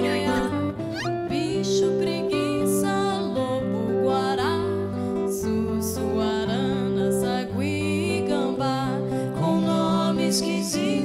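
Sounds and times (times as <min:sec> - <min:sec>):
acoustic guitar: 0:00.0 - 0:11.0
woman singing: 0:00.0 - 0:11.0
bass notes: 0:00.4 - 0:01.6.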